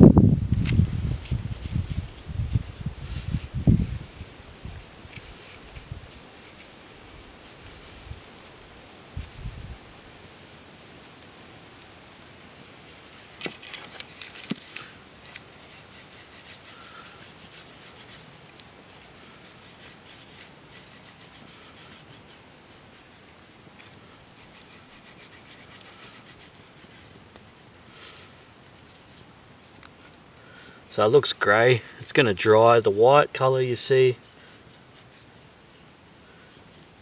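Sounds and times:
fingers rubbing clay paste: 12.8 - 27.8, 28.5 - 30.2, 30.9 - 33.0, 33.7 - 37.0.

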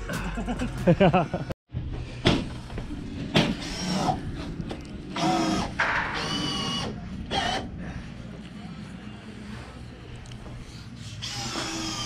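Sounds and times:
power drill running: 3.6 - 4.2, 5.2 - 7.7, 11.2 - 12.0.

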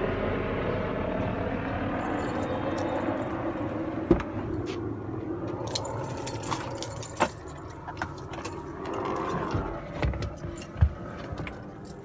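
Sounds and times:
pickup truck engine rumble: 0.0 - 12.0
keys jingling: 2.0 - 3.3, 5.5 - 9.2, 10.3 - 12.0.

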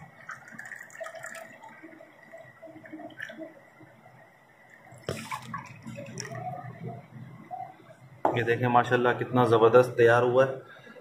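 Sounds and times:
juice pouring into a glass: 0.0 - 3.9, 4.7 - 6.8.

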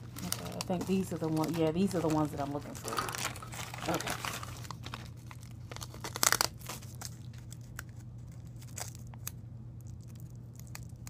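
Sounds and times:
packaging tearing and crinkling: 0.0 - 11.0
steady low hum: 0.0 - 11.0.

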